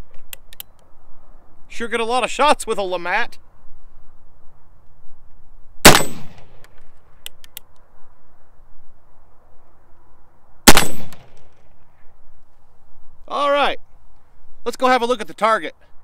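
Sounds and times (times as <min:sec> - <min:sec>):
revolver gunshot: 0:05.8 - 0:06.6, 0:10.7 - 0:11.4.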